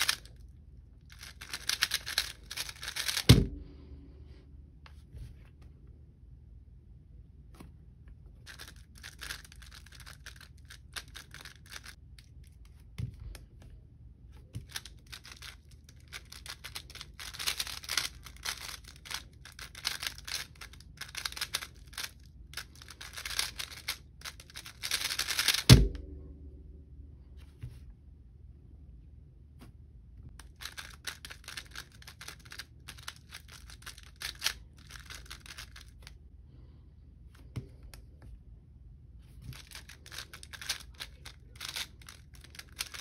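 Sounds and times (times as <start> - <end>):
rapid plastic cube clicks: 0.0 - 0.3, 1.1 - 3.4, 8.5 - 12.0, 14.6 - 25.8, 30.4 - 36.1, 39.5 - 43.0.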